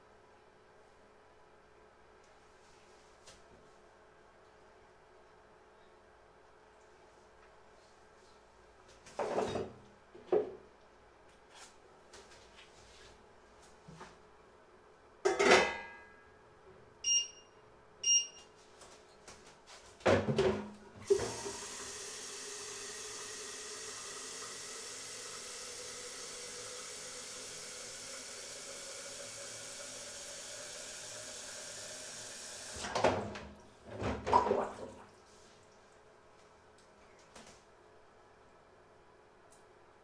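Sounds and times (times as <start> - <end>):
tap water running into jug: 21.0 - 32.8.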